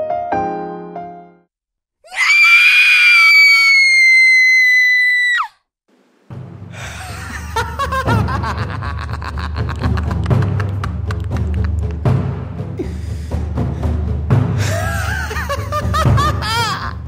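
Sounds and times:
high-pitched human scream: 2.1 - 5.6.

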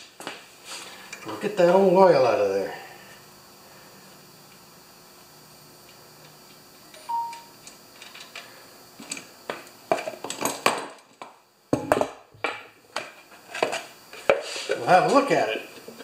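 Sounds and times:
short ringing ping: 7.0 - 7.5.

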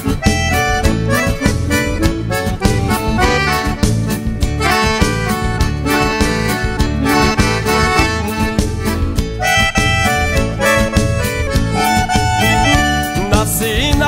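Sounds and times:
accordion music with steady beat: 0.0 - 14.0.

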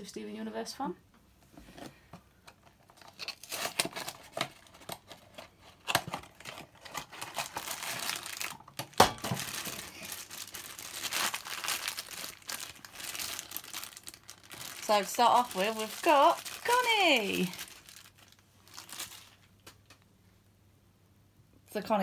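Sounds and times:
foil bag crinkling and tearing: 2.9 - 19.6.

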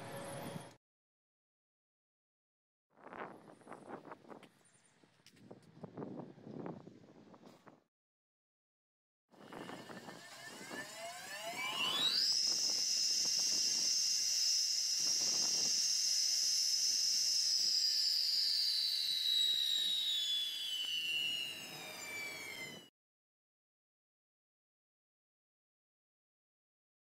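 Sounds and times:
table saw blade whining: 9.4 - 22.9.

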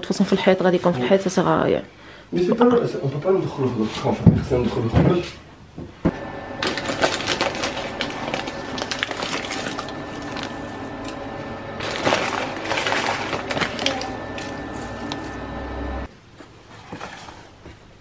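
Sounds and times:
steady hum of held tones: 6.1 - 16.1.

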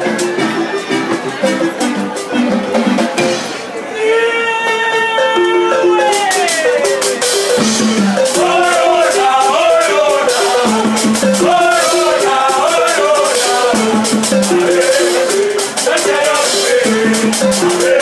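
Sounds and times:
marimba ensemble playing: 0.0 - 18.0
person singing: 4.3 - 18.0.

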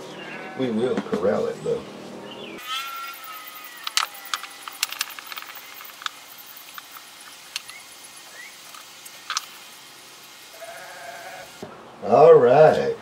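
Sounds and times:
small tools clicking and tapping: 3.0 - 9.6.

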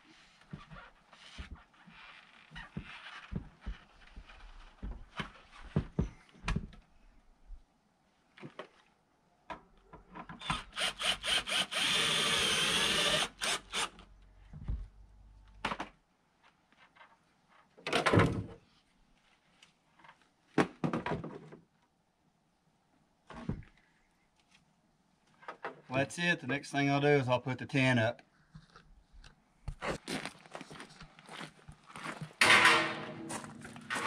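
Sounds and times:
cordless drill driving screw: 10.4 - 14.0
handling knocks and clatter: 32.2 - 34.0.

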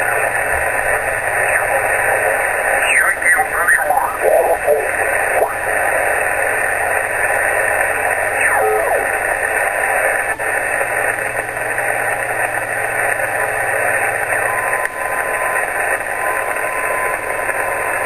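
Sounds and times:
radio click: 0.0 - 6.4, 7.0 - 11.2
radio interference hiss: 0.0 - 18.0.

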